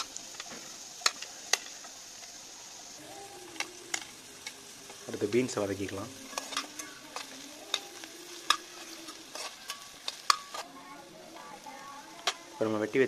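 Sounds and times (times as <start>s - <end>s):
vegetables sizzling in oil: 0.0s - 13.0s
ladle stirring and scraping: 3.1s - 12.7s.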